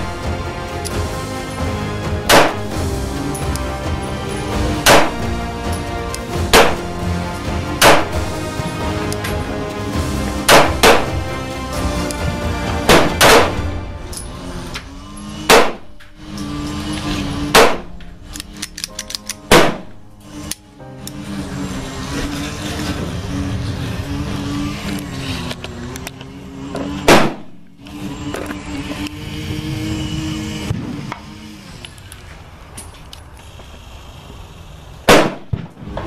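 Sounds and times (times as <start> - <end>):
background music: 0.0 - 31.0
pistol gunshots: 2.3 - 2.8, 4.8 - 5.3, 6.5 - 6.9, 7.8 - 8.2, 10.5 - 11.2, 12.9 - 13.8, 15.5 - 16.0, 17.5 - 18.0, 19.3 - 20.0, 27.0 - 27.5, 35.0 - 35.8.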